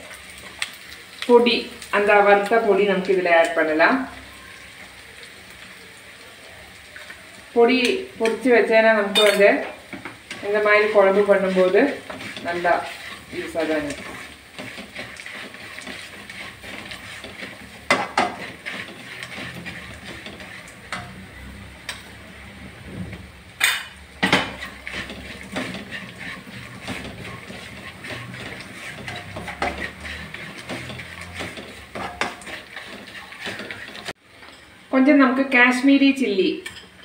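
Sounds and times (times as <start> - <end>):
wooden spatula scraping a pan: 0.0 - 1.3, 7.8 - 23.3, 24.1 - 34.7
spatula knocking against pan: 17.2 - 19.4.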